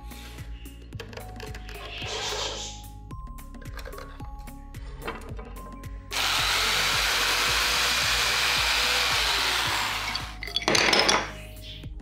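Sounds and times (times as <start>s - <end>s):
electric drill whining: 6.1s - 10.4s.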